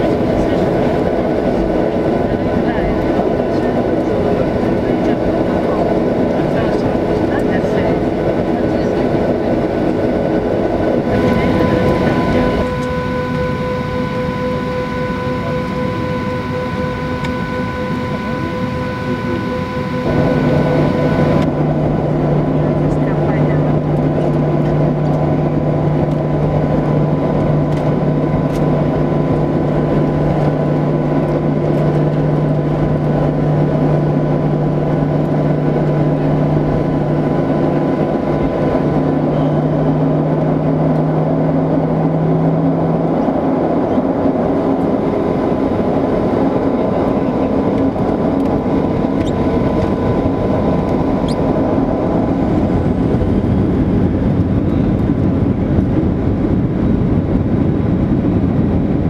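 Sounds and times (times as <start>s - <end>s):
aircraft engines at low thrust: 0.0s - 59.0s
low steady drone: 0.0s - 59.0s
faint high tone: 11.1s - 21.5s.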